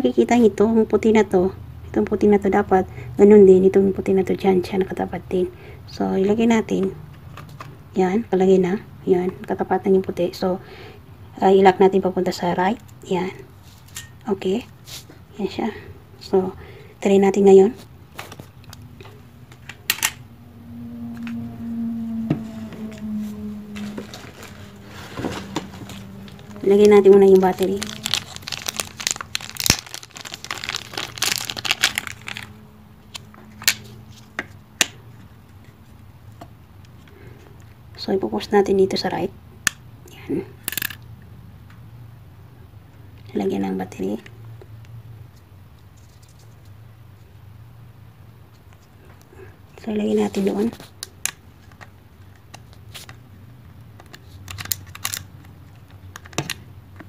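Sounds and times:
plastic wrapper crinkling: 0:23.7 - 0:33.8.

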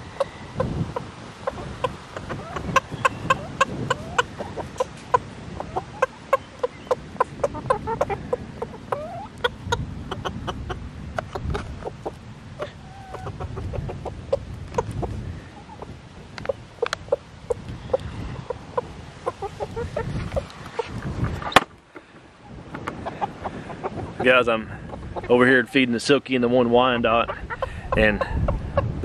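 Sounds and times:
hens clucking: 0:00.0 - 0:29.0
hen sliding calls: 0:01.0 - 0:09.6.

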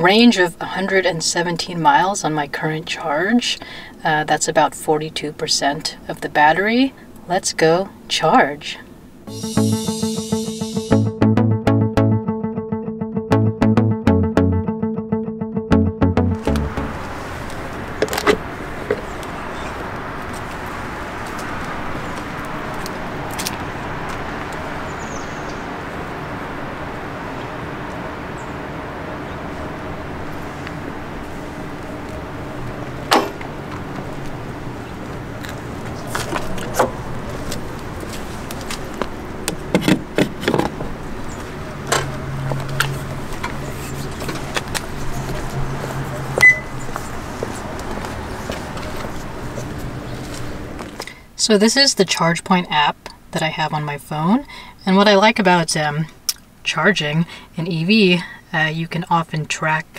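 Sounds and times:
road traffic hum: 0:15.7 - 0:51.4.

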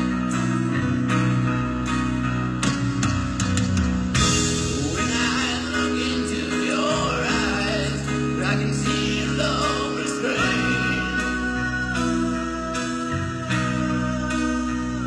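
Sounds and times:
live rock band playing ballad: 0:00.0 - 0:15.0
piano: 0:00.0 - 0:15.0
man singing: 0:04.8 - 0:15.0.

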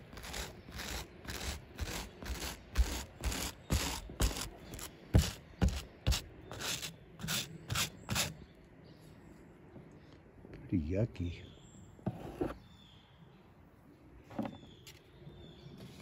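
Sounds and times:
wire brush scrubbing carpet: 0:00.0 - 0:08.3.

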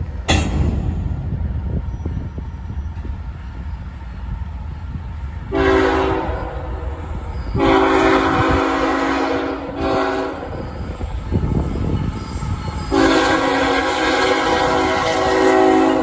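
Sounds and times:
locomotive air horn blasts: 0:05.5 - 0:10.7, 0:12.8 - 0:16.0.

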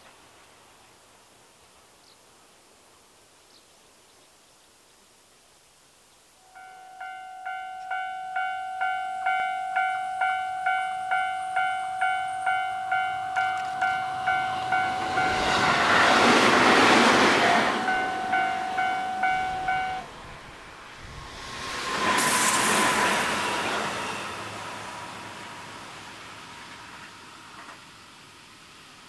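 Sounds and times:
level crossing bell clanging: 0:06.5 - 0:16.4, 0:17.4 - 0:20.1
train wheels rushing on rails: 0:09.3 - 0:28.4.

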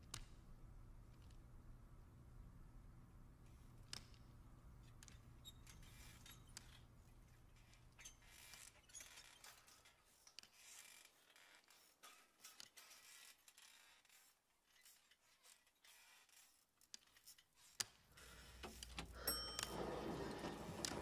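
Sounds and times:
soft scraping: 0:19.6 - 0:21.0.

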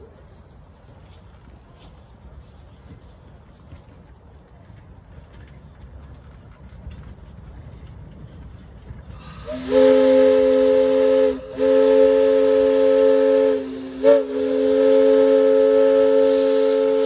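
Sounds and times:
steam locomotive whistle blasts: 0:09.1 - 0:17.0.

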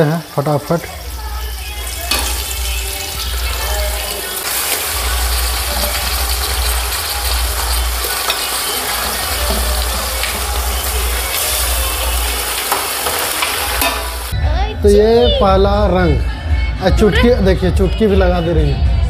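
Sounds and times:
meat sizzling in hot oil: 0:00.0 - 0:14.4.

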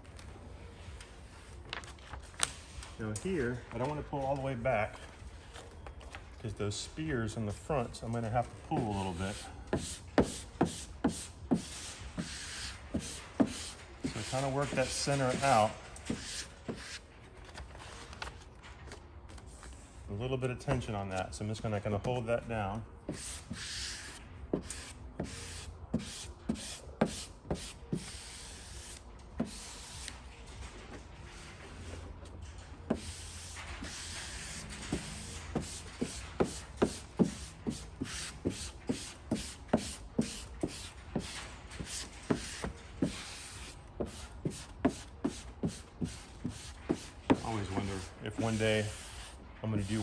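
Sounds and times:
squeegee rubbing on vinyl film: 0:08.8 - 0:17.2, 0:23.1 - 0:30.2, 0:32.9 - 0:50.0.

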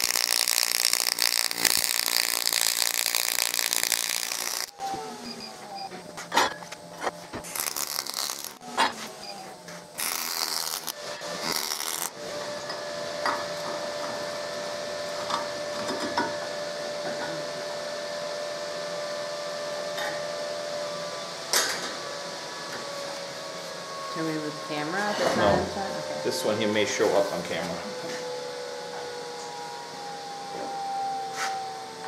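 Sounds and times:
welding arc hissing and crackling: 0:00.0 - 0:04.8, 0:07.4 - 0:08.6, 0:09.9 - 0:12.2
steady hum: 0:00.0 - 0:32.0.

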